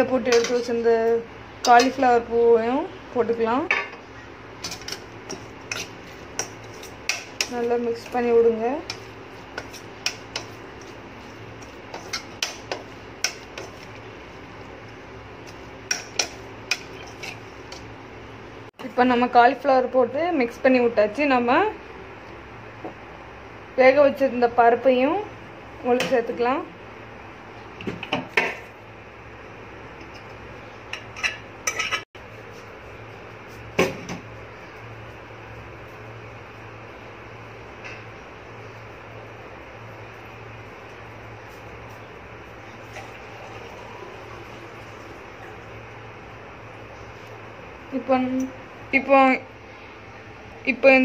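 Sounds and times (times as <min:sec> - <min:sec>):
steady low hum: 0:00.0 - 0:51.0
spoon clinking and scraping pot: 0:04.6 - 0:07.6, 0:11.6 - 0:13.9, 0:15.4 - 0:17.8, 0:30.9 - 0:32.0.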